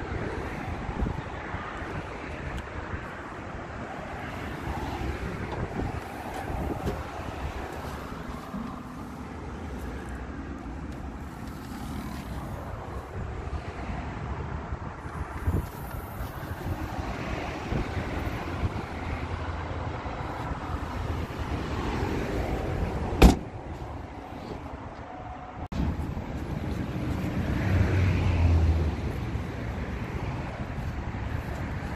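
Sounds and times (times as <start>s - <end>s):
wind on the microphone: 0.0s - 9.5s, 12.0s - 24.9s, 25.7s - 31.9s
car tailgate slamming: 23.2s - 23.6s.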